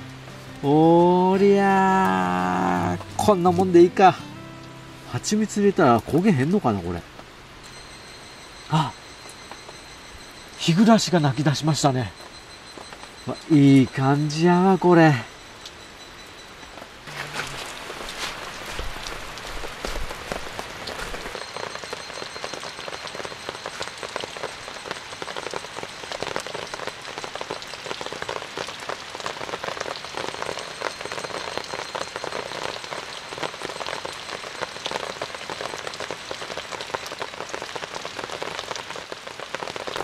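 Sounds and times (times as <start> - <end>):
heavy rain falling: 0.0 - 40.0
faint high insect calls: 6.3 - 19.2, 20.1 - 39.0.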